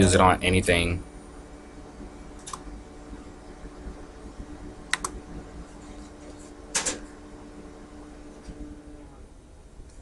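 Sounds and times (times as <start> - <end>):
steady low hum: 0.0 - 10.0
computer mouse clicking: 4.9 - 5.2.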